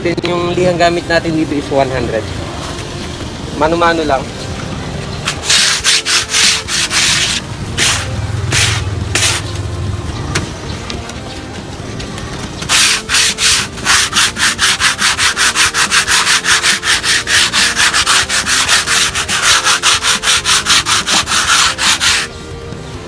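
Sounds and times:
sandpaper rubbing on wood: 5.3 - 9.5, 12.7 - 22.4.

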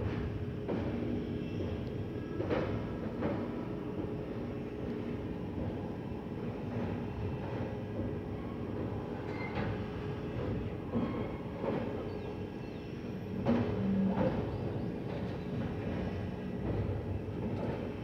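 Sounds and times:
train rumbling along track: 0.0 - 18.0.

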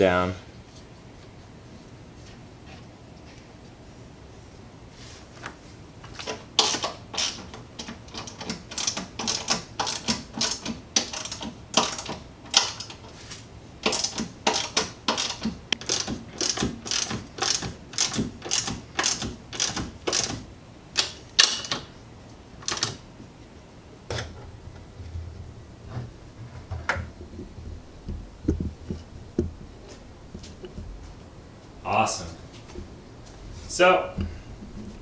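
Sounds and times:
ratchet wrench clicking: 6.6 - 13.0, 13.8 - 20.4.

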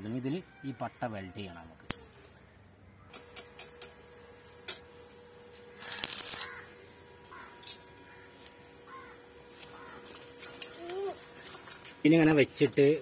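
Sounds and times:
faint steady hum: 0.0 - 13.0
crackling welding arc: 4.6 - 10.8.

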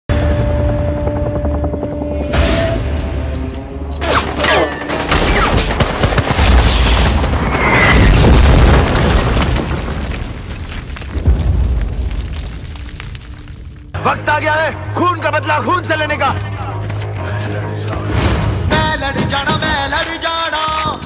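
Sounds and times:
dramatic film score: 0.1 - 8.9, 11.0 - 21.0
explosion booms: 6.4 - 13.6.

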